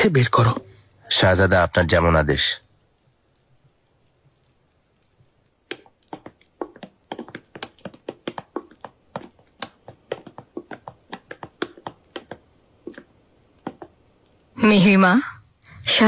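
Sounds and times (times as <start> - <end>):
footsteps on stone floor: 3.6 - 14.4.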